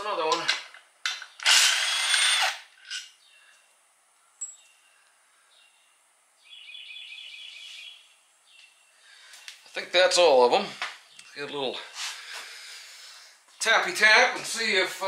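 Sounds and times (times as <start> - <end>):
power tool running: 1.4 - 2.7.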